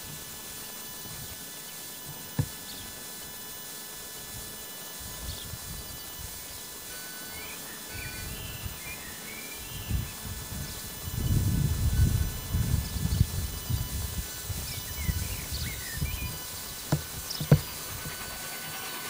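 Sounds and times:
distant steam locomotive rumble: 0.0 - 19.0
outdoor background: 0.0 - 19.0
bird chirps: 6.8 - 10.9, 12.3 - 19.0.

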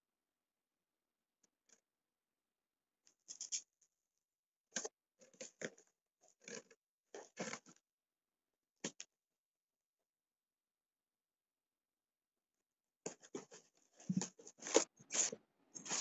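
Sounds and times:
packing tape cut and scraped: 14.2 - 16.0.

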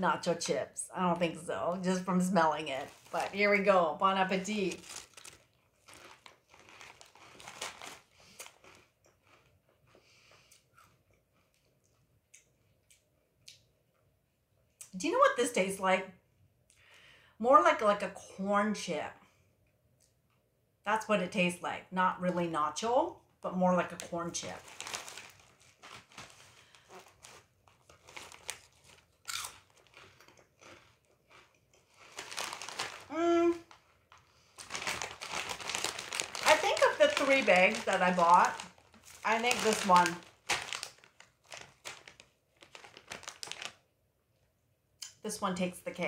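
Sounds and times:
plastic bag rustling: 0.1 - 8.9, 24.4 - 31.0, 31.8 - 43.8
chips crunching while chewed: 4.8 - 10.0, 24.7 - 43.8.

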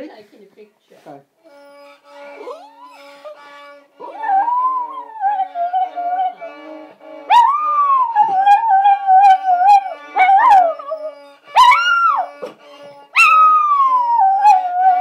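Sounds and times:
music with held notes: 1.4 - 15.0
dog howling: 4.0 - 15.0.

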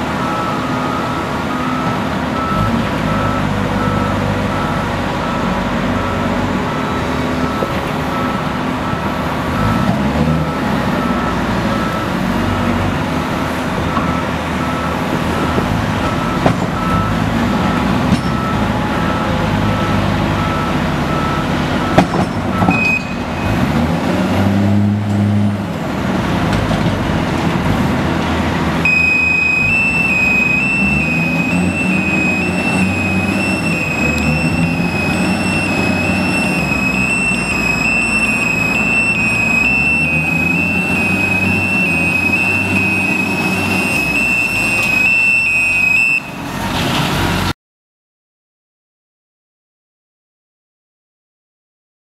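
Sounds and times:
diesel engine running: 0.0 - 47.5
high-pitched warning alarm: 28.8 - 46.4.

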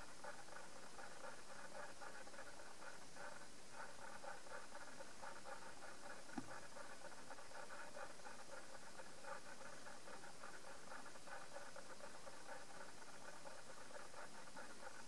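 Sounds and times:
background hum and hiss: 0.0 - 15.0.

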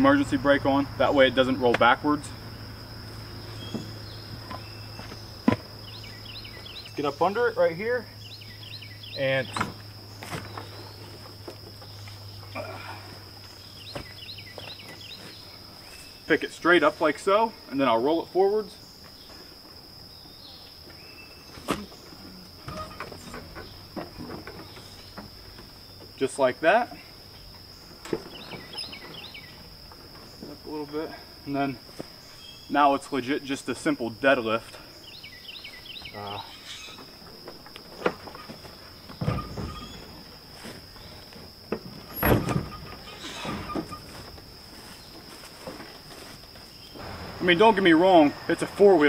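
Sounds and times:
high insect drone: 0.0 - 49.0
clunks and rattles: 21.6 - 26.2, 37.0 - 44.5.

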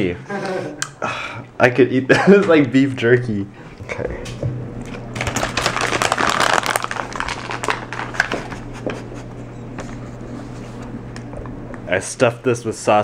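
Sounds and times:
packaging crinkling and rustling: 4.8 - 8.8.

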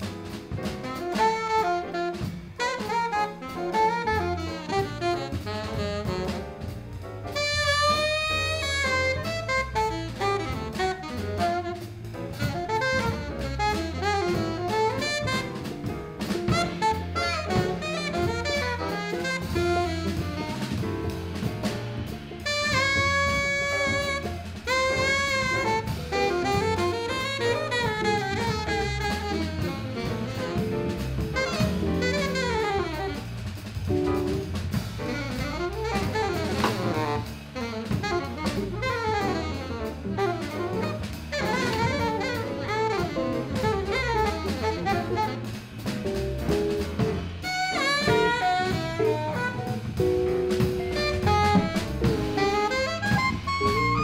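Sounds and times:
alto saxophone playing blues: 0.0 - 54.0
drum kit: 0.0 - 54.0
grand piano: 0.0 - 54.0.

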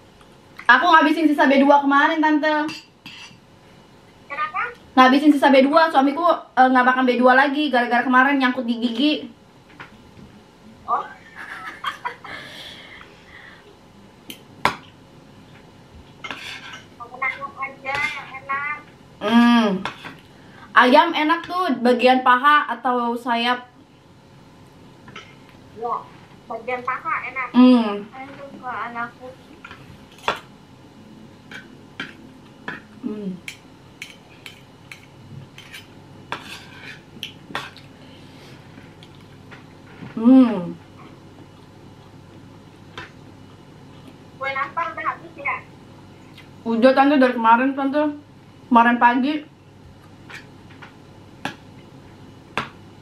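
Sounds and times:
cutlery scraping plate: 2.7 - 3.4, 16.2 - 16.9, 34.0 - 37.8
person humming: 40.2 - 40.8.

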